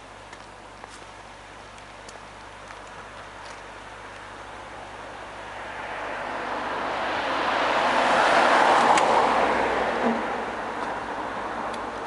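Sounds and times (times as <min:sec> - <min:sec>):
car passing: 0:04.7 - 0:12.0.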